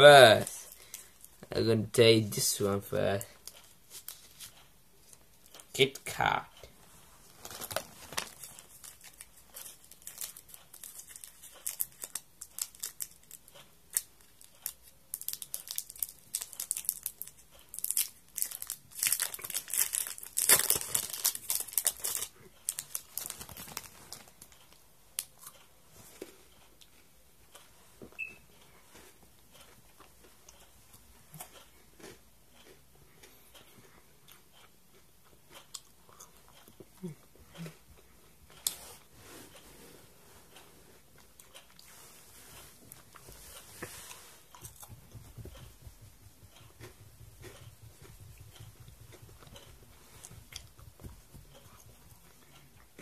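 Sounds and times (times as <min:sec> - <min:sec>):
candy wrapper crinkling and tearing: 0:07.4 - 0:24.5.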